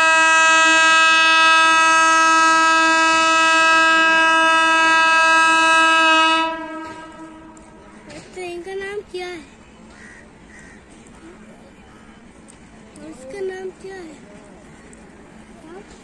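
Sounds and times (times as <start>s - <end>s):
locomotive horn blast: 0.0s - 7.8s.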